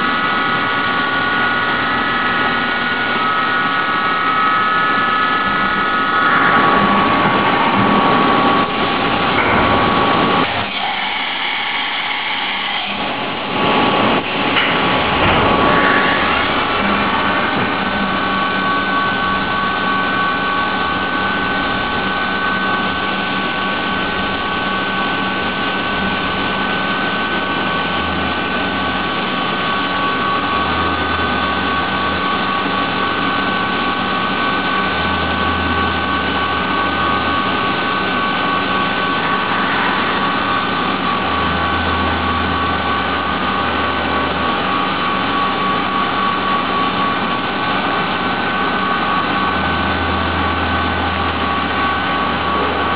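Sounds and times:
milling machine spindle whine: 0:00.0 - 0:52.9
low hum: 0:13.6 - 0:46.9, 0:48.5 - 0:52.9.

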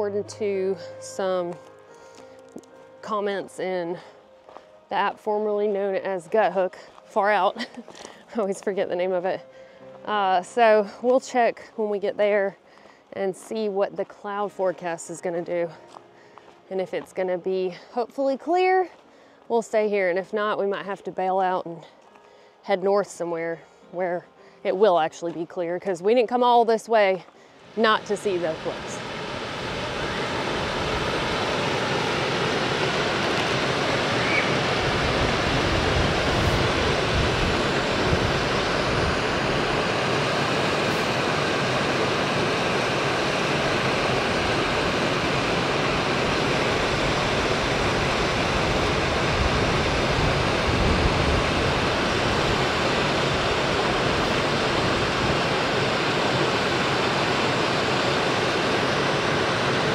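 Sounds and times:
creek water rushing over stones: 0:27.6 - 0:59.9.

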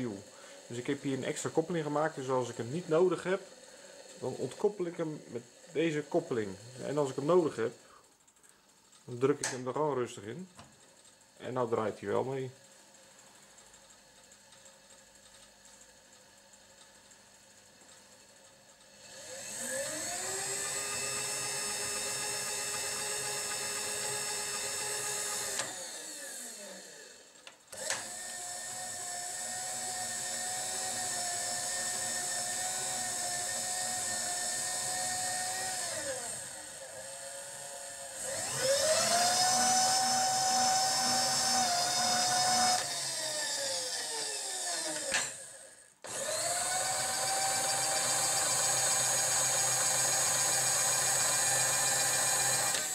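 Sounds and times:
electric motor whine: 0:19.0 - 0:52.9.

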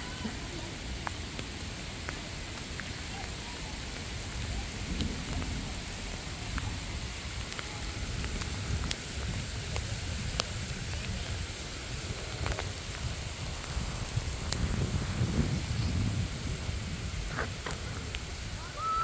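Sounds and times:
steady rain falling: 0:00.0 - 0:19.0
single raindrop ticks: 0:12.4 - 0:14.8.

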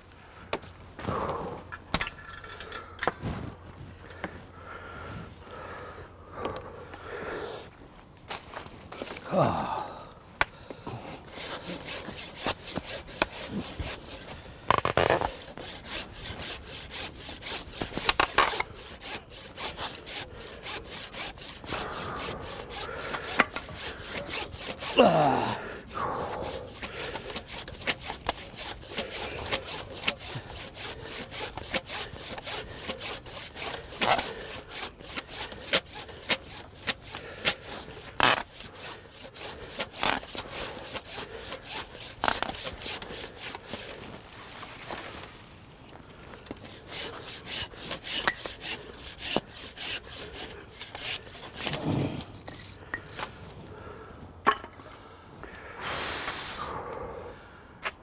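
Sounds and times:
hand saw cutting tree stem: 0:11.1 - 0:45.3, 0:46.4 - 0:53.2.

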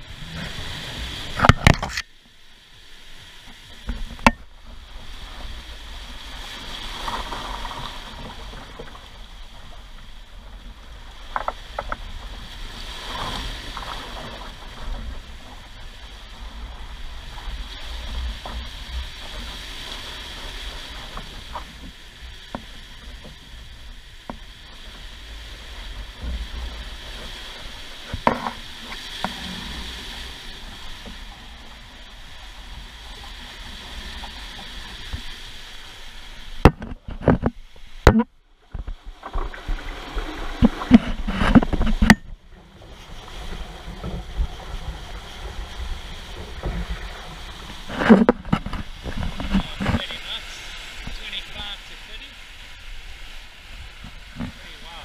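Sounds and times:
sea water rushing along hulls: 0:00.0 - 0:55.0.

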